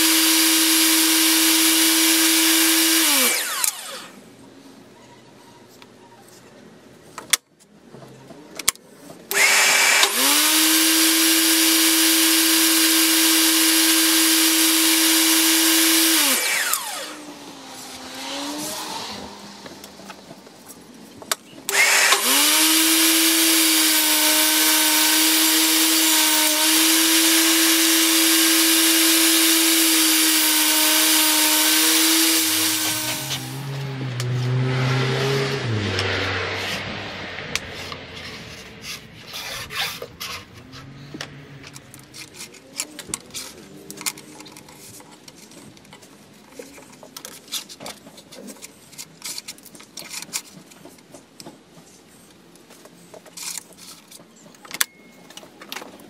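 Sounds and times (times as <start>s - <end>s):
table saw motor whine: 0.0s - 4.2s, 9.3s - 19.4s, 21.7s - 37.6s.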